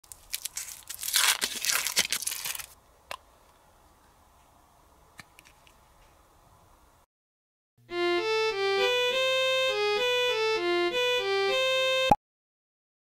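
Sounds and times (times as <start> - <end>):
packaging crinkling and tearing: 0.0 - 2.8.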